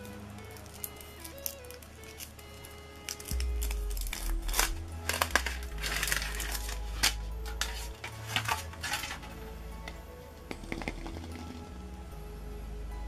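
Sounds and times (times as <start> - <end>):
foil wrapper crinkling: 0.0 - 9.3
background music with low bass: 0.0 - 13.0.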